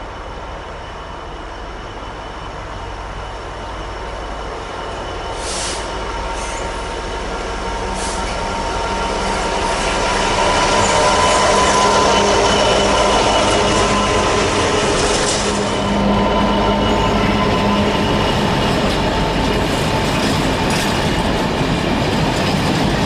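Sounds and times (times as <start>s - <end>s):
diesel locomotive approaching: 0.0s - 23.0s
short hisses: 5.4s - 6.6s.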